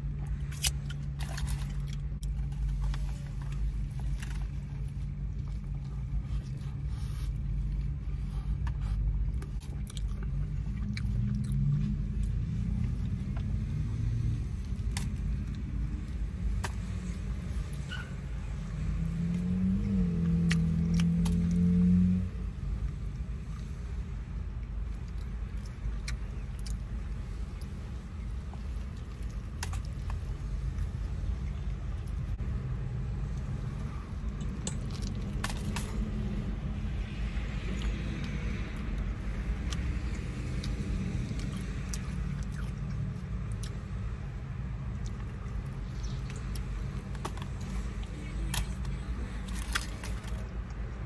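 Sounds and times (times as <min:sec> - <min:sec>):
person chewing food: 0:00.0 - 0:17.8, 0:24.6 - 0:32.4, 0:33.1 - 0:51.0
low rumble inside car: 0:00.0 - 0:51.0
soft mouth clicks and smacks: 0:24.6 - 0:27.8, 0:37.6 - 0:44.2, 0:44.8 - 0:50.8.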